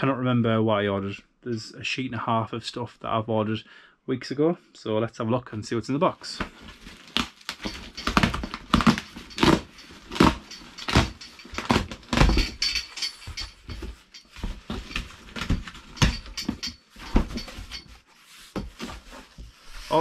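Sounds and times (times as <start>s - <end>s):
cardboard box rustling and knocking: 6.4s - 19.8s.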